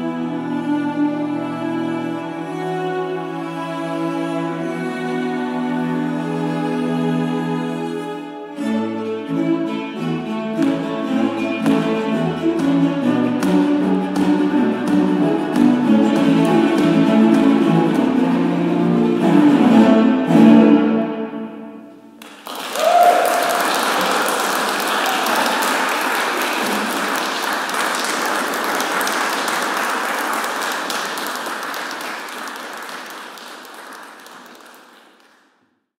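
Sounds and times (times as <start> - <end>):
cello ensemble chord: 0.0 - 22.1
audience applause: 22.2 - 35.6
audience cheer: 22.4 - 27.0.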